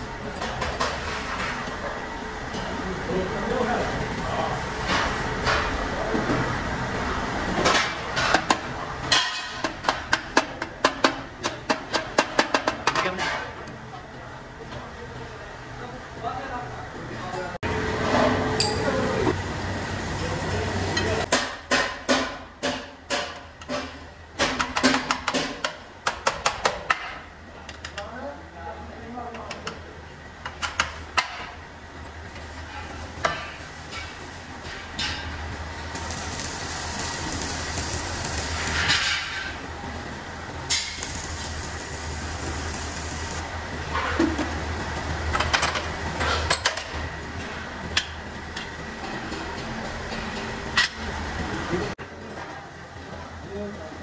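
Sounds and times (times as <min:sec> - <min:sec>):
hammer striking metal: 0:18.6 - 0:18.9.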